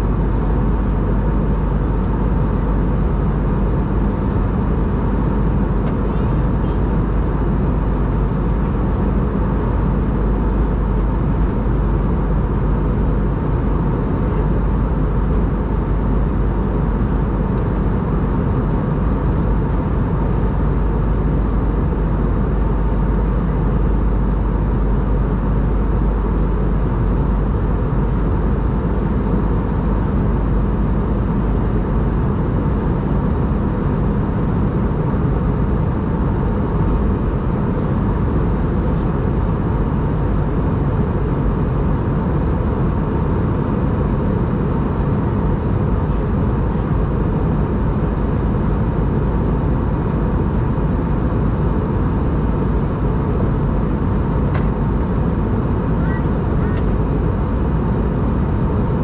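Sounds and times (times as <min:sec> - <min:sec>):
aircraft cabin engine drone: 0:00.0 - 0:59.0
faint high whine: 0:55.3 - 0:57.7.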